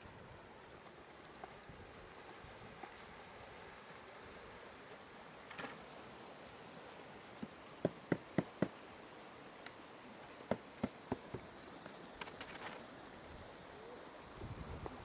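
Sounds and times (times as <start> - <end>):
floodwater rushing: 0.0 - 15.0
hollow knocks on wooden boat: 7.4 - 8.8, 10.5 - 11.5.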